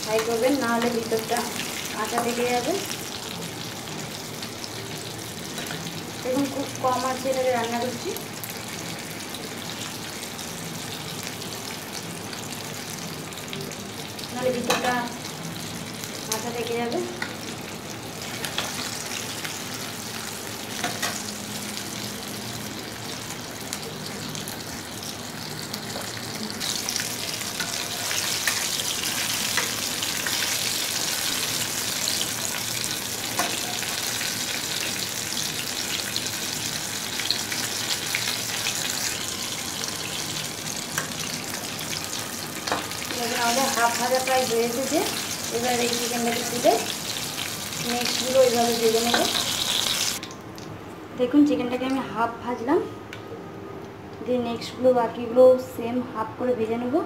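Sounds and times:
chicken sizzling in oil: 0.0 - 50.4.

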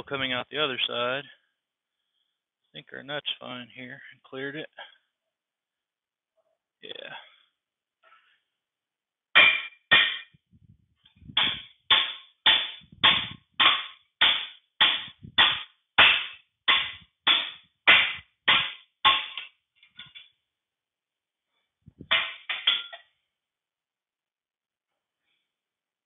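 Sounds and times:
hammer striking steel rod: 9.4 - 10.4, 11.4 - 19.5.

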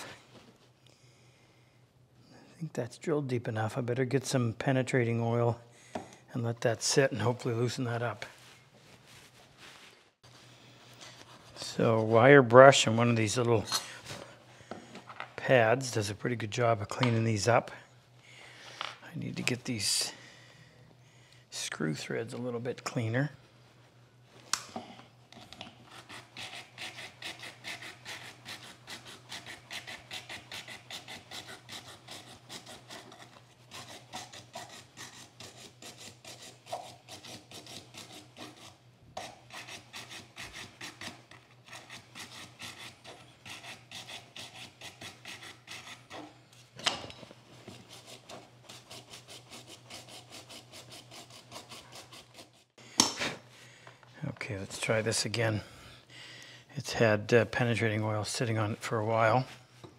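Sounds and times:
wire brush scrubbing metal: 26.0 - 46.3, 47.7 - 52.6.

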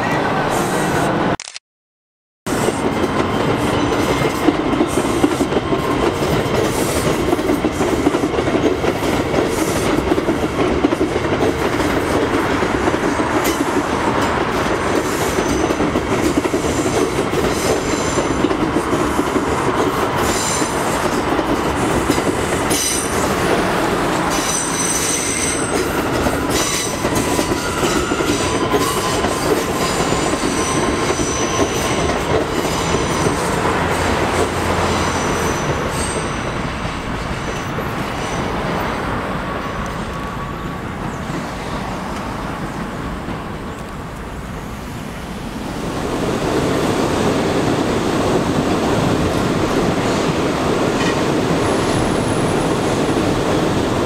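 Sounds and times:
train clickety-clack: 2.5 - 44.8, 46.2 - 54.0
train wheels rumbling on rail: 2.5 - 54.0
high-pitched wheel squeal: 24.3 - 29.5.

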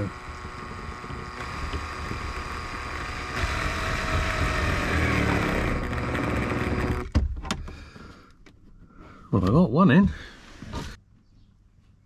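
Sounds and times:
cordless drill driving screw: 0.0 - 7.1.

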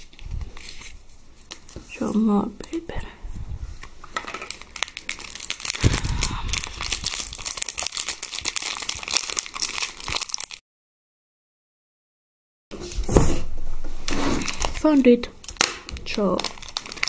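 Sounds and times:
paper crinkling and tearing: 0.0 - 1.9, 4.1 - 10.6, 14.1 - 17.0.

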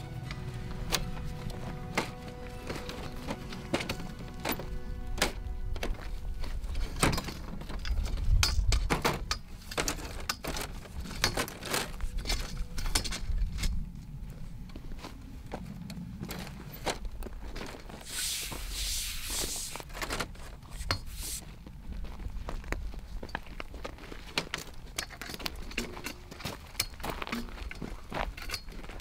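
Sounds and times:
folding metal furniture clicking: 6.7 - 13.4
short rushing hiss: 18.0 - 19.8, 20.8 - 21.4.

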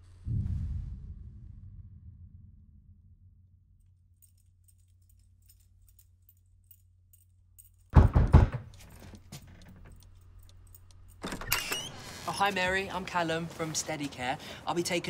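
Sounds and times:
metallic rattle and knocking on door: 7.9 - 10.0.

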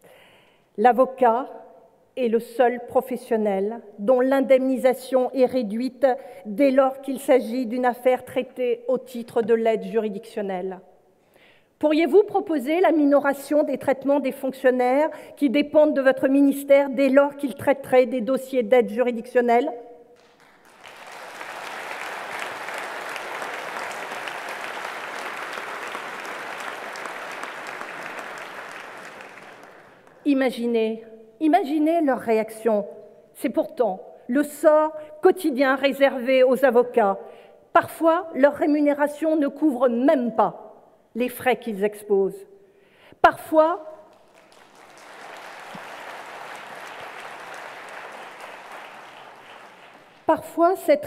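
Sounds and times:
audience applauding: 20.2 - 30.2, 44.1 - 50.3.

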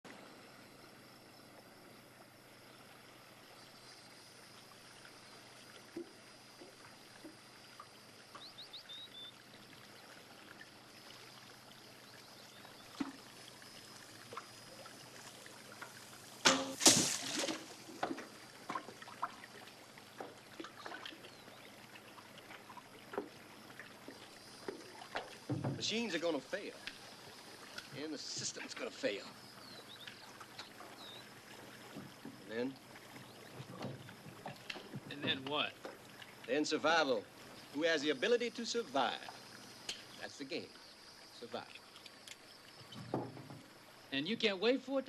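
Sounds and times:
faint river ambience: 0.0 - 45.0
small splashes: 9.2 - 36.6
arrow rushing into water: 16.4 - 18.1
small knocks: 24.6 - 25.9, 42.0 - 43.7.

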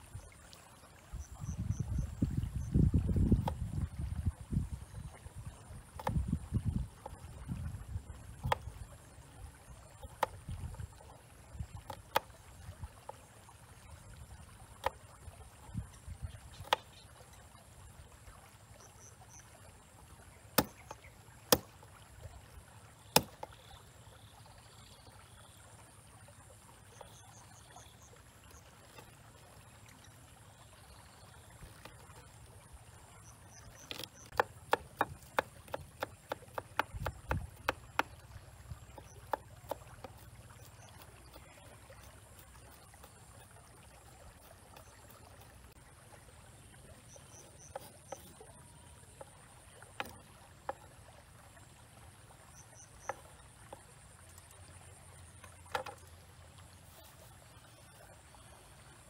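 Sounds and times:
knife chopping on wooden board: 20.6 - 20.8, 23.2 - 23.4, 33.9 - 38.1.

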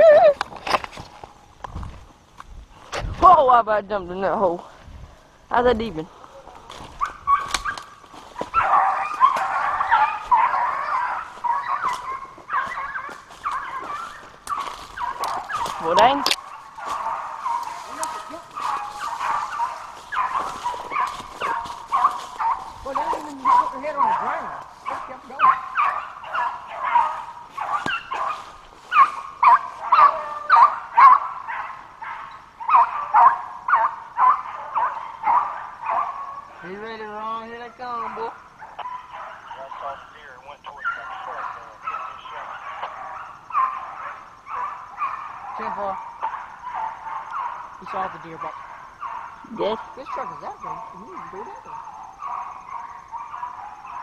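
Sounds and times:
hounds baying: 5.6 - 54.0.

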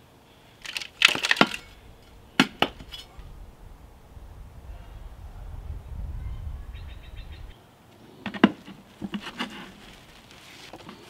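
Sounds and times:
low rumble: 1.6 - 7.6.

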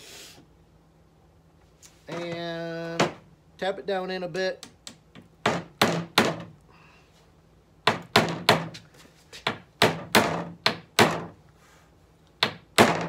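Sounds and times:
hammer striking nail into wood: 5.4 - 6.5, 7.8 - 8.8, 9.5 - 11.4, 12.4 - 13.0.

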